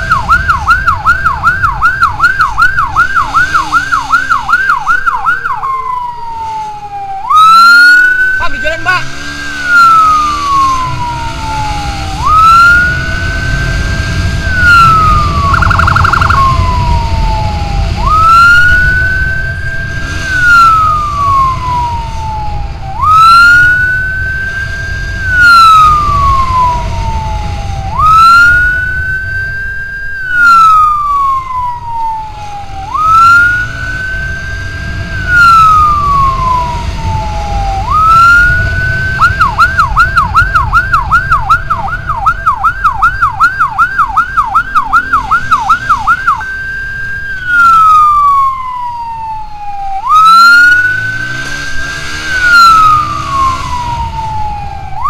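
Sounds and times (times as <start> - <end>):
electronic siren wailing: 0.0 - 55.0
motorcycle rumble: 0.0 - 55.0
wind: 0.0 - 55.0.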